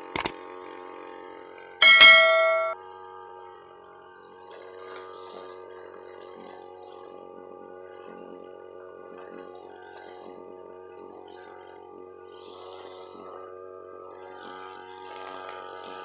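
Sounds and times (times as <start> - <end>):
bell-like ding notification: 1.8 - 2.8.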